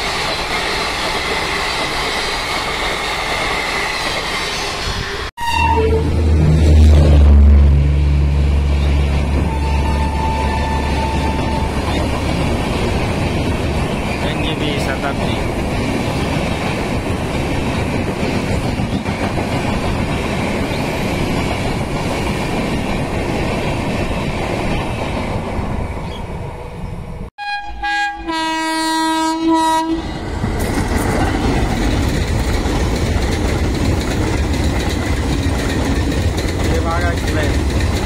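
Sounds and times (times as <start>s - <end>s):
train coaches rushing past: 0.0s - 27.2s, 29.8s - 38.0s
locomotive horn: 5.4s - 11.9s, 27.4s - 30.2s.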